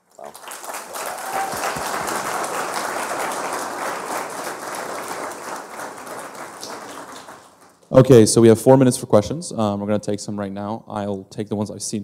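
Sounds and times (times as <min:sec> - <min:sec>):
audience applauding: 0:00.0 - 0:07.9.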